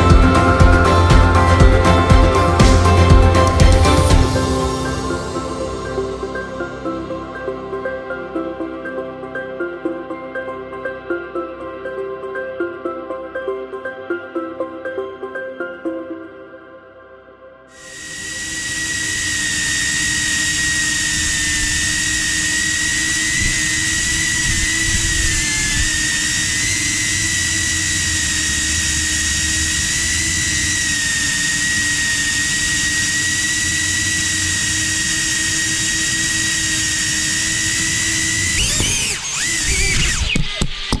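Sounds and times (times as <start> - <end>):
drone propellers whining: 0.0 - 8.8, 17.8 - 41.0.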